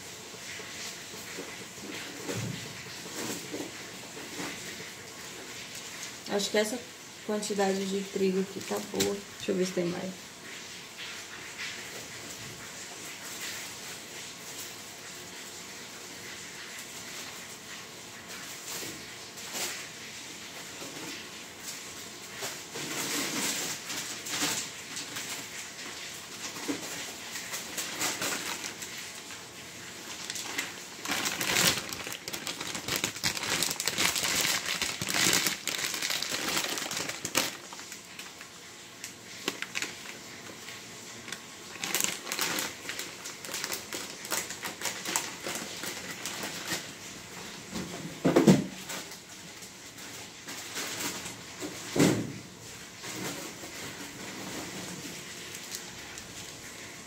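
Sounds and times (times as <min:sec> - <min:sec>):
plastic packaging crinkling: 0:07.4 - 0:09.8, 0:22.3 - 0:47.1, 0:48.8 - 0:51.9, 0:53.0 - 0:56.9.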